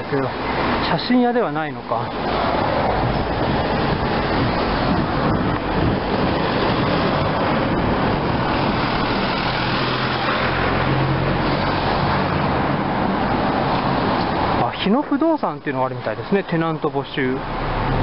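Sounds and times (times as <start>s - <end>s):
road traffic passing: 0.0s - 18.0s
low engine hum: 2.1s - 14.6s.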